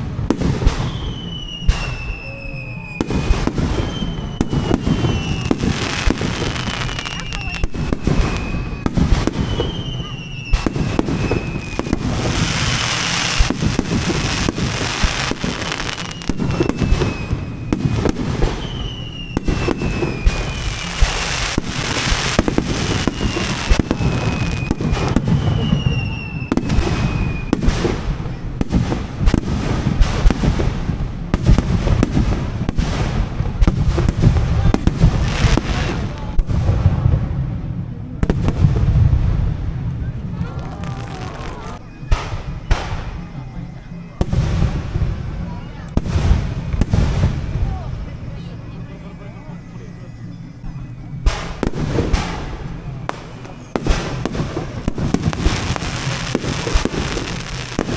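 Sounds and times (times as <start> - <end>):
falling firework whistles: 0.0 - 37.3, 38.2 - 57.9
fireworks bursting: 0.0 - 57.9.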